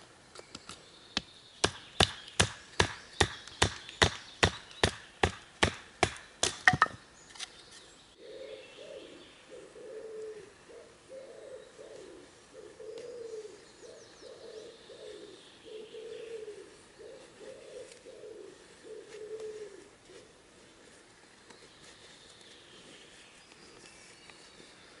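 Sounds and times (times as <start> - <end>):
wooden baton knocking on knife: 6.6 - 7.0
pigeon cooing: 8.2 - 19.9.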